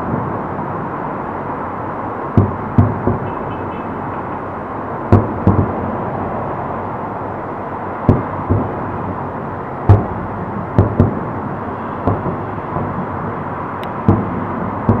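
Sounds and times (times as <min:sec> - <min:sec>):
steady background hiss: 0:00.0 - 0:15.0
distant firework booms: 0:02.4 - 0:03.2, 0:05.1 - 0:05.8, 0:08.0 - 0:09.1, 0:09.8 - 0:11.3, 0:12.0 - 0:13.2, 0:14.0 - 0:15.0.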